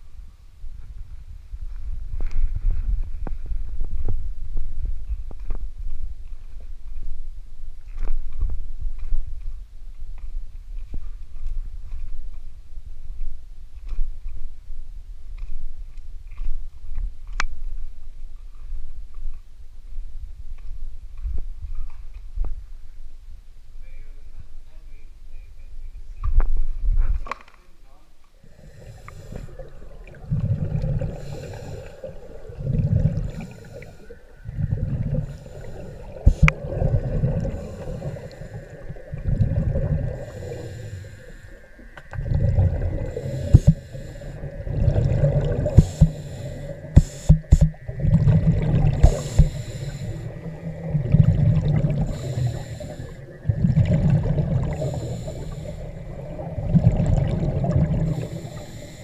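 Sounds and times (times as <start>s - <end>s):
diver exhaling bubbles: 28.4s - 59.0s
regulator breathing underwater: 28.4s - 59.0s.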